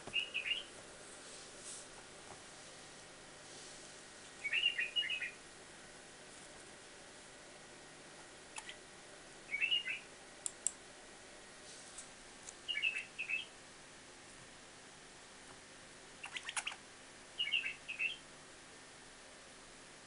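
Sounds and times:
bird chirping: 0:00.0 - 0:00.7, 0:04.3 - 0:05.4, 0:09.5 - 0:10.1, 0:12.6 - 0:13.6, 0:16.2 - 0:16.8, 0:17.4 - 0:18.2
sharp clicks: 0:08.6 - 0:08.8, 0:10.4 - 0:10.8.

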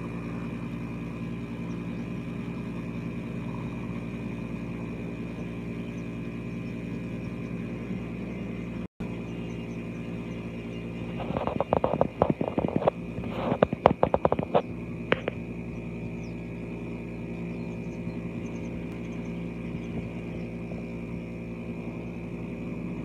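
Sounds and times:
distant helicopter drone: 0:00.0 - 0:23.0
sharp irregular crackles: 0:11.0 - 0:15.4.

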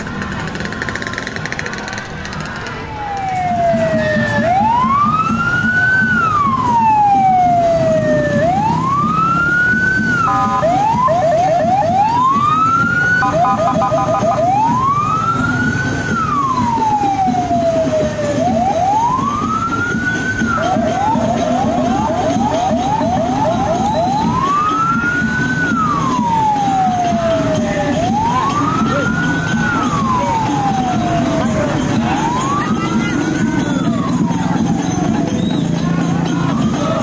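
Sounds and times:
police siren wailing: 0:02.8 - 0:37.0
siren yelping chirps: 0:08.7 - 0:15.4
horn-like blasts: 0:10.2 - 0:11.0.

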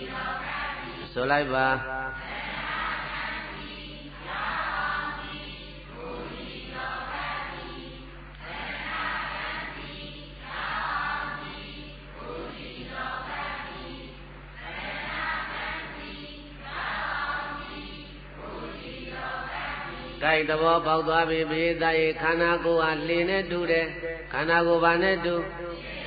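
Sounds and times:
congregation reciting in unison: 0:00.0 - 0:26.0.

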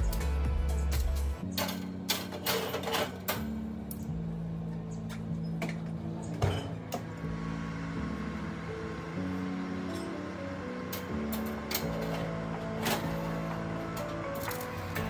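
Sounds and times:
oven door shutting: 0:09.2 - 0:15.0.

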